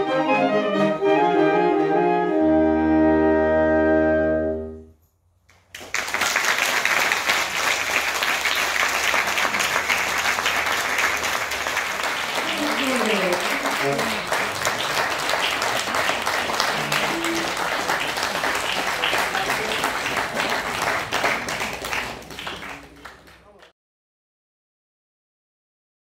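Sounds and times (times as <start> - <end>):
saxophone ensemble chord: 0.0 - 4.9, 12.3 - 20.3
audience applause: 5.5 - 23.7.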